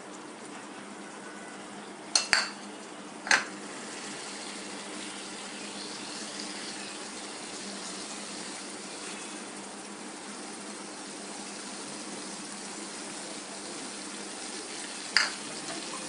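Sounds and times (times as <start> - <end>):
food hissing in pan: 3.5 - 16.0.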